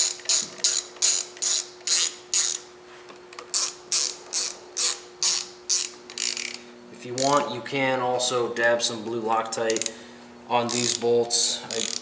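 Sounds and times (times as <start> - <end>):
ratchet wrench clicking: 0.0 - 2.6, 3.5 - 6.6, 9.7 - 10.0, 10.7 - 11.1, 11.7 - 12.0.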